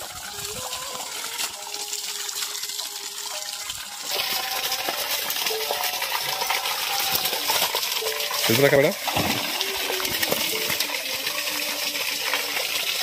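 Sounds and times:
water dripping: 0.0 - 13.0
fish splashing in shallow water: 4.2 - 11.2.

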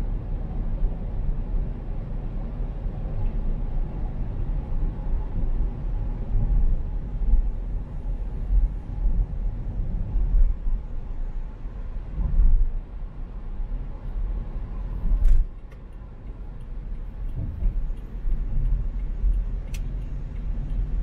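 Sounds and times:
car driving rumble: 0.0 - 21.0.

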